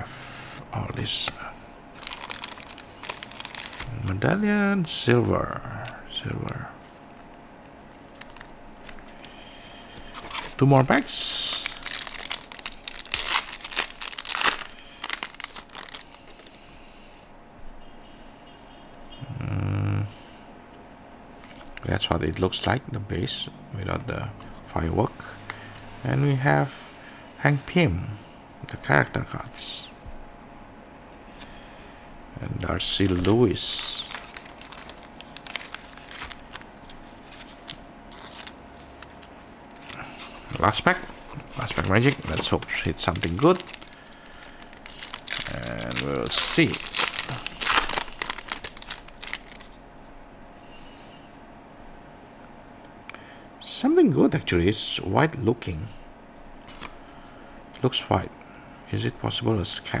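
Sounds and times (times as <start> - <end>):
handling of cards: 0.9 - 4.2, 5.1 - 16.6, 21.4 - 21.9, 32.5 - 50.2, 56.6 - 57.0
foil wrapper crinkling: 1.0 - 4.2, 8.0 - 9.4, 10.0 - 16.6, 32.8 - 49.8.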